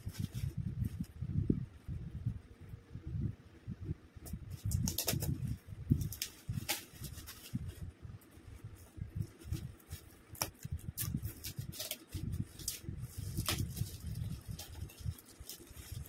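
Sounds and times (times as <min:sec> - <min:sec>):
paper rustling and crinkling: 0:04.5 - 0:16.0
scissors cutting wrapping paper: 0:10.4 - 0:16.0.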